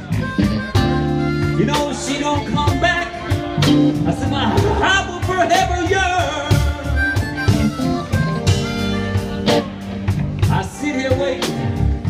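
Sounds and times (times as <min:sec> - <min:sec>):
harmonica: 0:00.0 - 0:05.2, 0:06.2 - 0:10.1
bass guitar: 0:00.0 - 0:12.0
electric guitar: 0:00.0 - 0:12.0
steady drum beat: 0:00.0 - 0:12.0.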